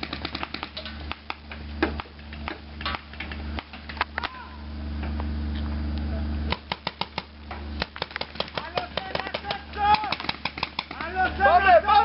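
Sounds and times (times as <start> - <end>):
paintball markers firing: 0.0 - 4.1, 6.5 - 11.2.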